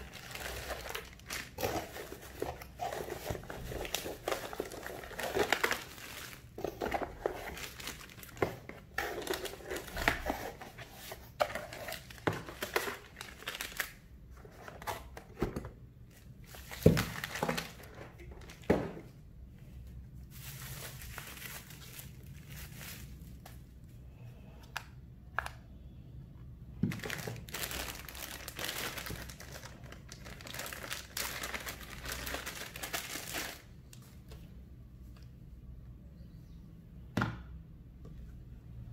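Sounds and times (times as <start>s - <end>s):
plastic bags crinkling: 0.0s - 10.5s, 11.3s - 14.0s, 16.2s - 18.9s, 20.3s - 23.5s, 26.8s - 33.8s.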